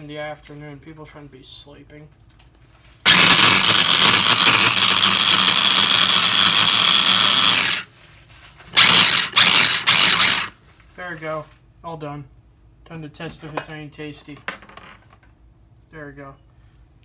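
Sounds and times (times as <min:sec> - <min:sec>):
food chopper motor whirring: 0:03.0 - 0:07.9, 0:08.7 - 0:10.6.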